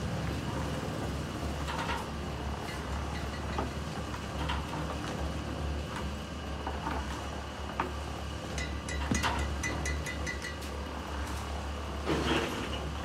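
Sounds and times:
concrete mixer drone: 0:00.0 - 0:13.0
construction clinks and knocks: 0:01.6 - 0:05.1, 0:08.5 - 0:10.8.

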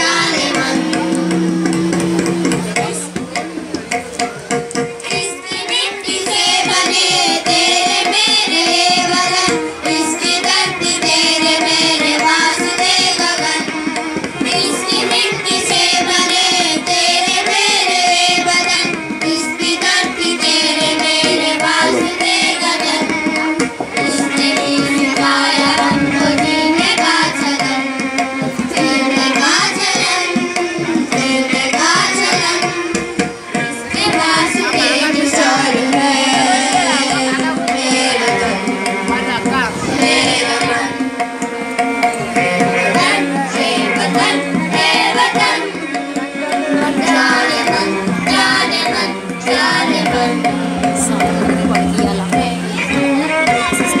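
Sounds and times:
children's choir singing: 0:00.0 - 0:54.0
hand drum percussion: 0:00.0 - 0:54.0.

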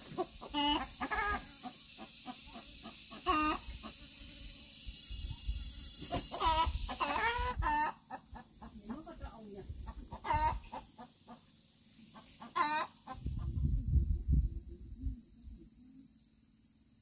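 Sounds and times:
chickens clucking: 0:00.0 - 0:04.0, 0:06.0 - 0:09.2, 0:09.8 - 0:13.8
steady high hiss: 0:00.0 - 0:09.8.

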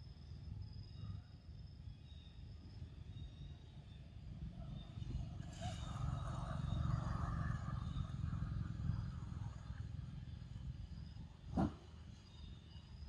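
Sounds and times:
motor vehicle passing: 0:05.2 - 0:12.0.

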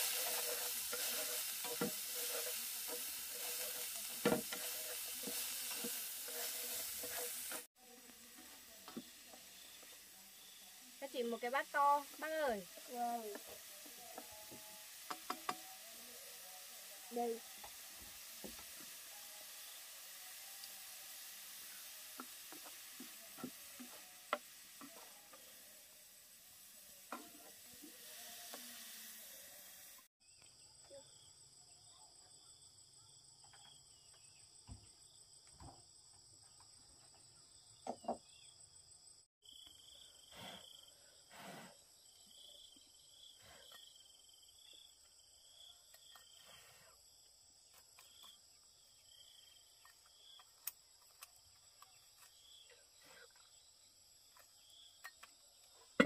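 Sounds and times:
food sizzling in a pan: 0:00.0 - 0:30.2
crickets chirping: 0:08.4 - 0:29.4, 0:30.2 - 0:56.0.

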